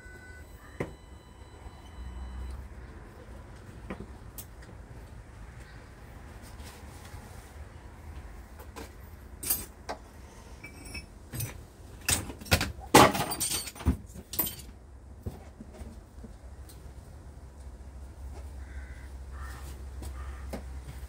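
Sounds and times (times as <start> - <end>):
rattling clinks of metal parts: 9.4 - 9.8, 10.6 - 14.8.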